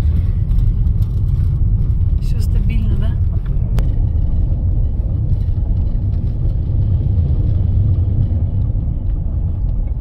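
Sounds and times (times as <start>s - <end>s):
car engine rumble: 0.0s - 10.0s.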